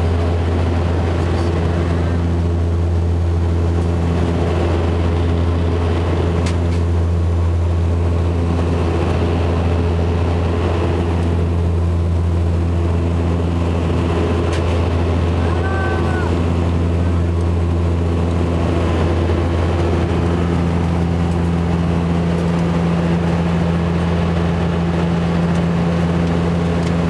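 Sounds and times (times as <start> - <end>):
propeller engine drone: 0.0 - 27.0
higher hum tones: 9.4 - 27.0.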